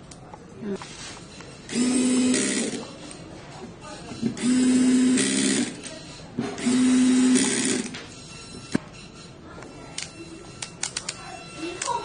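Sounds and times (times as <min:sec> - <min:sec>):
electric screwdriver humming: 0:01.7 - 0:02.8, 0:04.4 - 0:05.8, 0:06.6 - 0:07.9.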